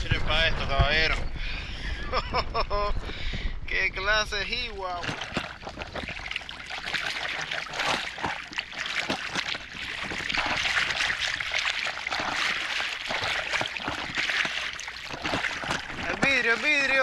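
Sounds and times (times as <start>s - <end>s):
small waves lapping and splashing: 4.8s - 17.0s.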